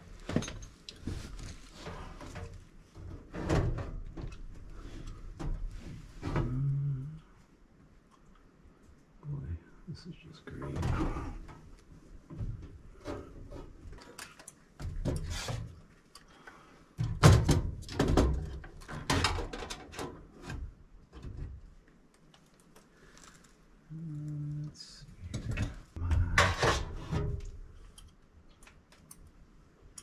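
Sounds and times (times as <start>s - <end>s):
sheet metal knocks and clunks: 17.0s - 20.1s.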